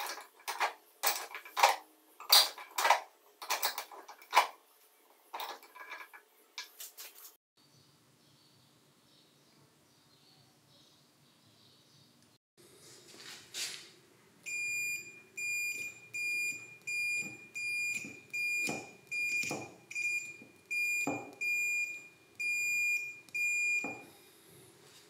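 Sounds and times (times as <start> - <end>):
multimeter continuity beeps: 14.5 - 24.1.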